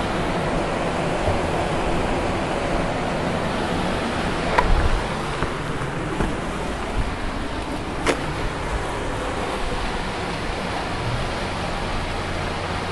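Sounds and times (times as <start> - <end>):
river water rushing: 0.0 - 12.9
camera handling knocks: 4.5 - 6.4.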